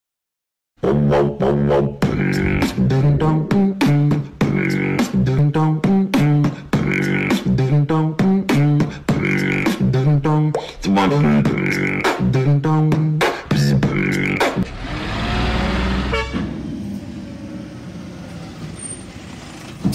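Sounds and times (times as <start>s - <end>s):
background music with steady beat: 2.0s - 14.7s.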